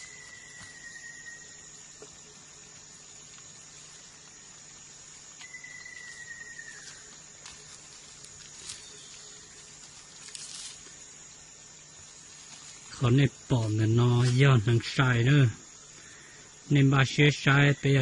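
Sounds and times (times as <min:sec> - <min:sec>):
high-pitched insect drone: 0:00.0 - 0:18.0
footsteps in dry leaves: 0:05.1 - 0:11.0, 0:12.1 - 0:13.0.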